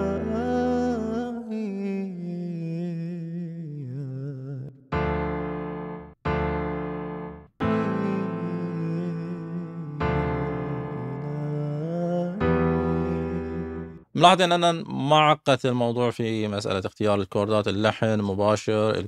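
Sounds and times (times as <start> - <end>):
electric piano chords: 4.9 - 11.4, 12.4 - 14.0.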